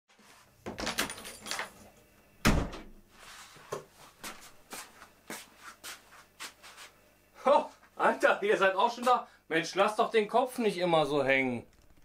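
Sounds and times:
footsteps on brick floor: 4.0 - 6.9.

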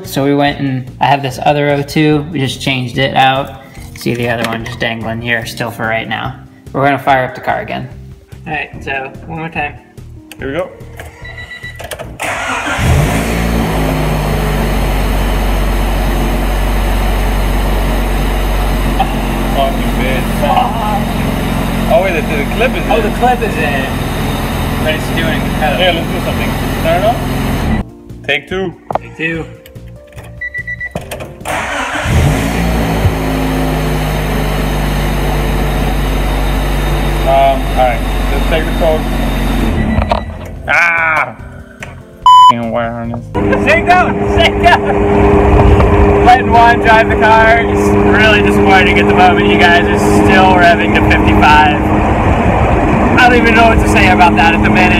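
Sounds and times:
starter motor cranking: 11.0 - 13.3, 31.4 - 33.2
car engine idling: 12.2 - 27.8, 31.4 - 39.8, 43.4 - 54.9.

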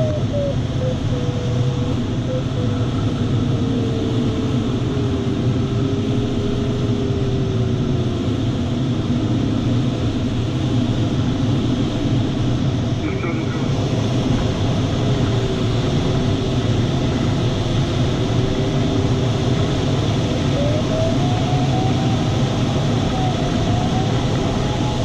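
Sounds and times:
airflow rushing in cockpit: 0.0 - 25.0
faint electronic tone: 13.0 - 14.0.

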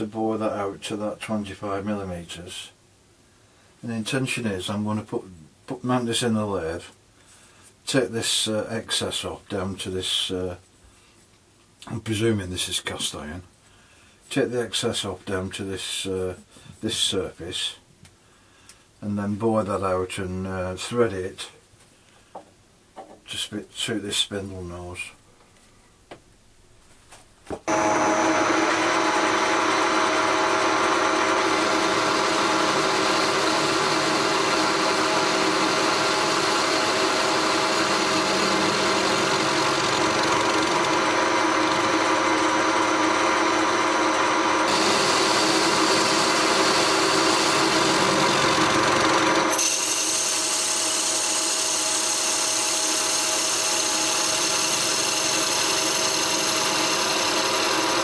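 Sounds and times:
metal lathe machining: 27.7 - 58.0.

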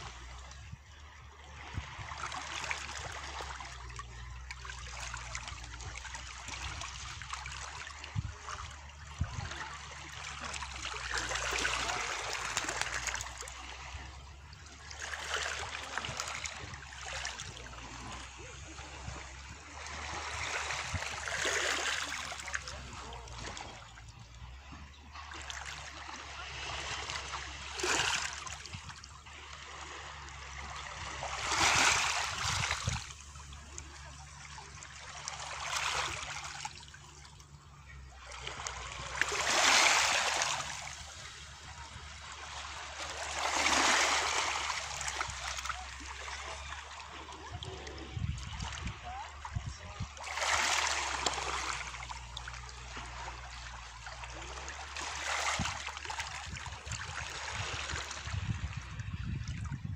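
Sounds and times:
waves lapping on pebble beach: 9.2 - 14.2, 29.4 - 36.6, 38.4 - 58.6.

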